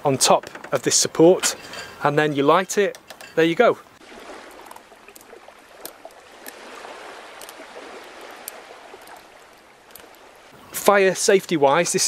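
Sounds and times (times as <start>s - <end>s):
faint clicks and knocks: 0.2s - 1.9s, 2.6s - 3.4s, 8.2s - 10.3s
water lapping around a boat: 3.8s - 10.8s.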